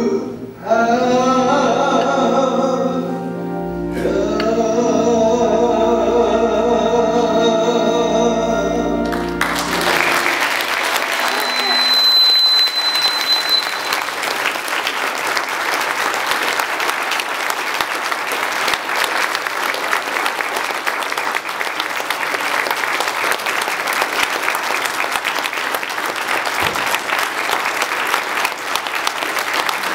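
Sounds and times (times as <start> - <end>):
crowd clapping: 9.0 - 29.9.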